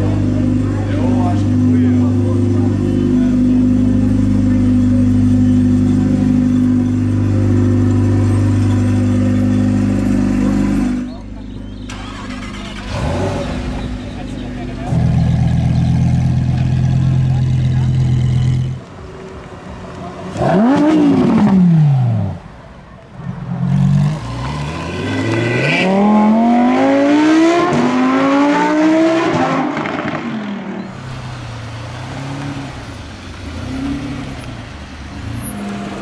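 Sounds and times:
car engine revving and accelerating: 11.9s - 14.0s, 20.3s - 22.4s, 23.6s - 36.0s.

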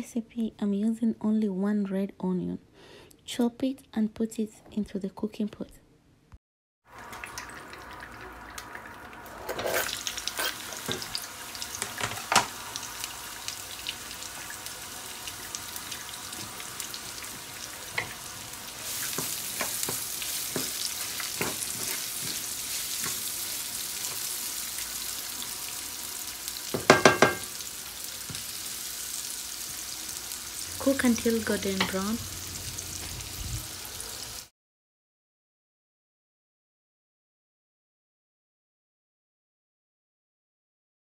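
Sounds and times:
onion sizzling in hot oil: 6.9s - 34.5s.

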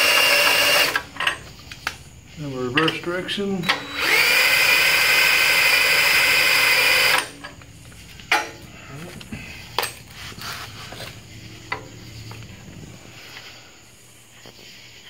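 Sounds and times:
drill spinning gears: 0.0s - 1.0s, 3.7s - 7.3s.

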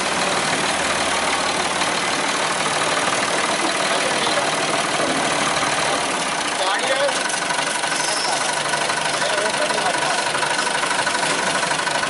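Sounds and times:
tractor diesel engine idling: 0.0s - 12.0s.

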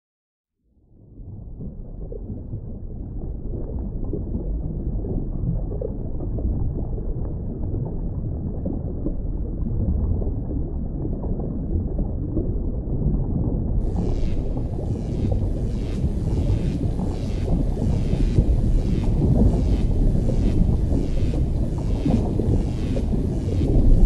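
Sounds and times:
low muffled rumble: 13.6s - 24.0s.

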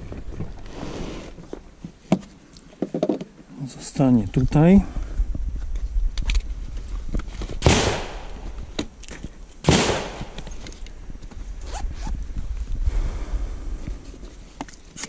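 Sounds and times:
low rumble: 4.2s - 9.0s, 9.7s - 14.6s
sharp bangs: 7.6s - 8.5s, 9.6s - 10.6s.

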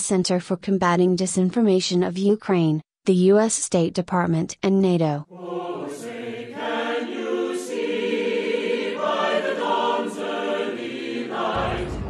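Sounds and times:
choir singing held chords: 5.3s - 12.0s
low rumble: 11.5s - 12.0s.

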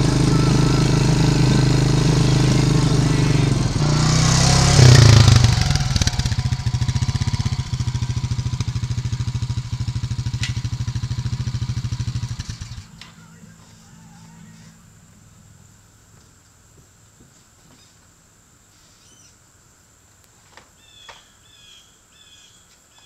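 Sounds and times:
atv engine running and idling: 0.0s - 15.6s.

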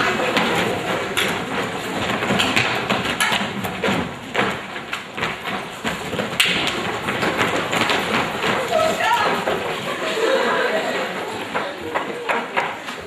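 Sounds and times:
feet thudding on wooden boards: 0.1s - 10.0s
crowd voices: 8.2s - 13.0s.

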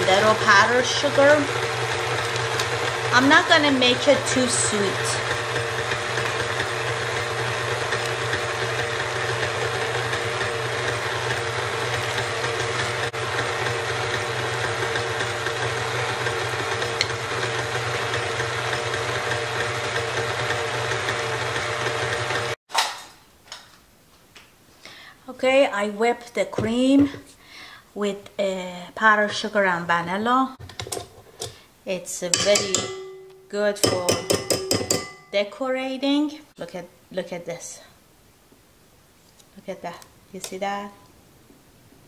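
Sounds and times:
stand mixer whipping cream: 0.0s - 22.6s.

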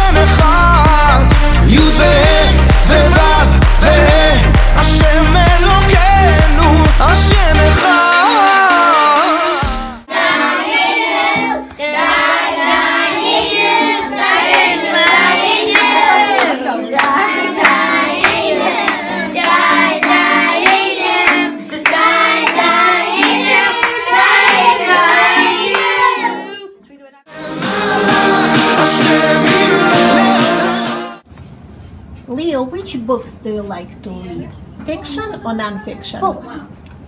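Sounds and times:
voices singing a song: 0.0s - 31.2s
hands clapping: 14.5s - 26.0s.

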